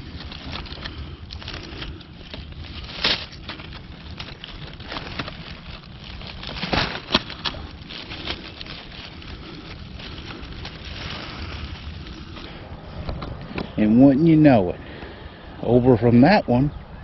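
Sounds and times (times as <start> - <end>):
twigs snapping: 0.0 - 13.8
leaves rustling and crackling: 0.0 - 16.6.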